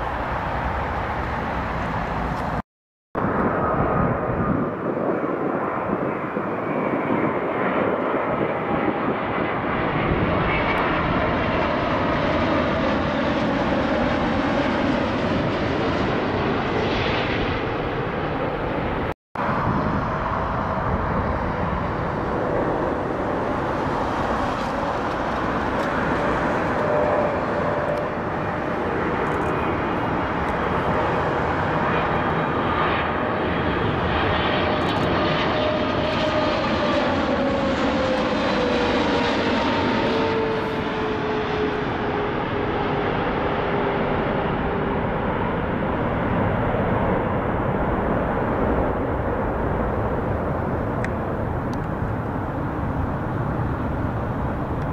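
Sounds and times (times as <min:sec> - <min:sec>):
jet airliner engines on approach: 0:00.0 - 0:02.6, 0:03.2 - 0:54.9.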